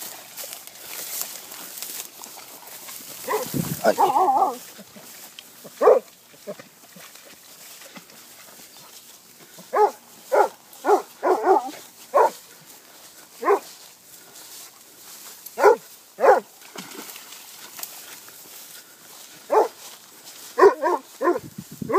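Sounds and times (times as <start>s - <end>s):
dog barking: 3.2s - 4.6s, 5.8s - 6.0s, 9.7s - 12.4s, 13.4s - 13.7s, 15.6s - 16.5s, 19.5s - 19.8s, 20.6s - 21.9s.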